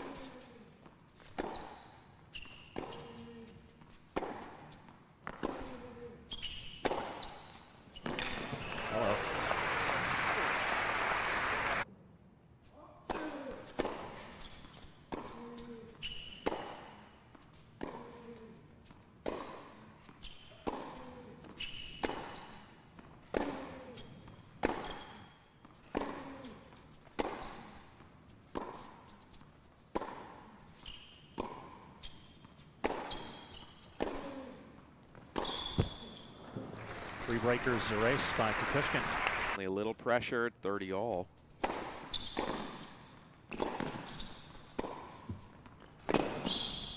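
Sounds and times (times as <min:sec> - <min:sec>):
shoe squeaks on court: 0:00.0 - 0:09.2, 0:13.3 - 0:34.4, 0:35.0 - 0:36.6, 0:41.3 - 0:46.9
racket striking tennis ball: 0:01.1 - 0:01.8, 0:04.1 - 0:05.8, 0:16.4 - 0:18.3, 0:19.2 - 0:19.8, 0:20.5 - 0:30.4, 0:31.3 - 0:34.3, 0:41.6 - 0:46.9.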